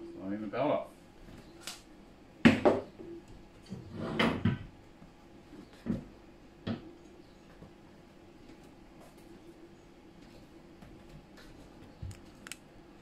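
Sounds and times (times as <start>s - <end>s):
knocks and clunks on metal frame: 2.5s - 4.7s.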